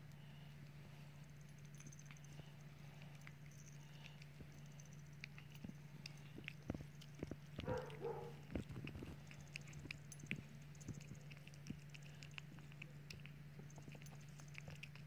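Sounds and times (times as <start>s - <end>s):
kitten chewing bread: 0.0s - 15.0s
steady low hum: 0.0s - 15.0s.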